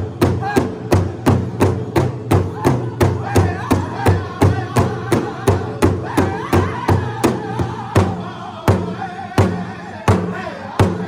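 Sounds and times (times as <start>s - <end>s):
big drum struck in unison: 0.0s - 11.0s
men singing: 2.3s - 11.0s.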